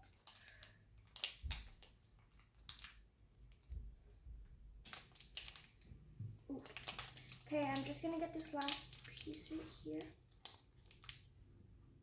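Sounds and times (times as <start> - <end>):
plastic packet crinkling and clicking: 0.0 - 3.9, 4.8 - 5.9, 6.5 - 11.3.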